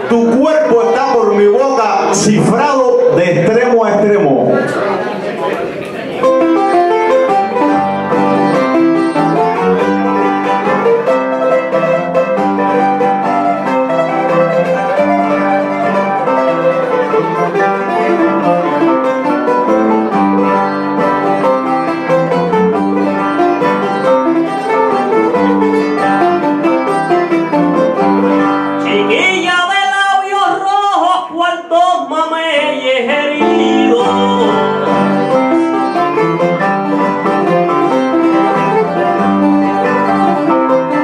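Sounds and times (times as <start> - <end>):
strummed guitar accompaniment: 0.0 - 30.6, 33.2 - 41.0
plucked acoustic guitar melody: 6.1 - 29.2, 33.4 - 41.0.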